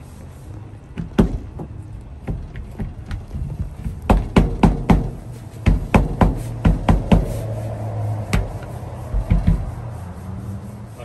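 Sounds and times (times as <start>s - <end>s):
hand knocking on windshield glass: 3.8s - 7.3s.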